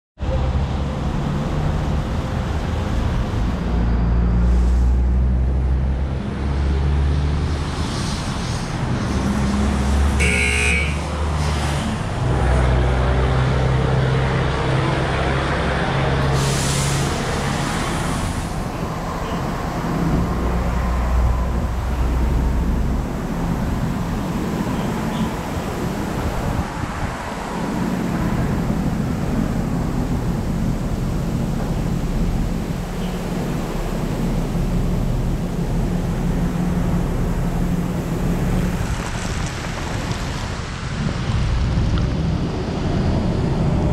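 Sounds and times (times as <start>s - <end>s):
car rumbling: 0.2s - 43.9s.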